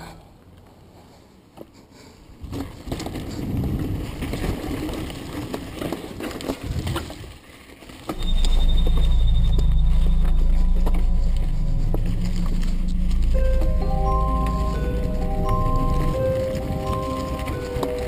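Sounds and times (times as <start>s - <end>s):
mountain bike rattling: 2.4s - 13.4s, 14.0s - 18.0s
background music: 8.2s - 18.0s.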